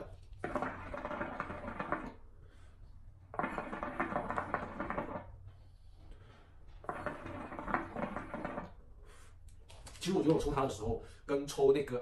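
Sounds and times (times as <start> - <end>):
water bubbling in hookah: 0.0 - 5.5, 6.8 - 9.0.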